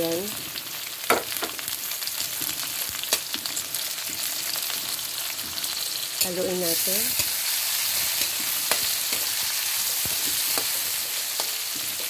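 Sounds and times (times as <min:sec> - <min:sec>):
vegetables sizzling in oil: 0:00.0 - 0:12.0
utensil knocking on pan: 0:01.1 - 0:01.6.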